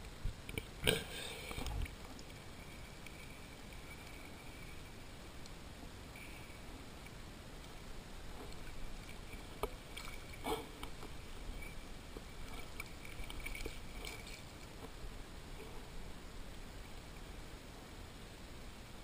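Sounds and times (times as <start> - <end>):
water lapping and sloshing: 8.2 - 15.9
water splashes: 8.2 - 16.2.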